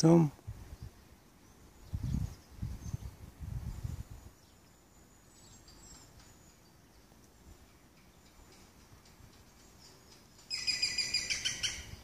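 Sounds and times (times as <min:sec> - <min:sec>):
faint high birds chirping: 0:00.0 - 0:12.0
low rumbling microphone noise: 0:00.3 - 0:04.4.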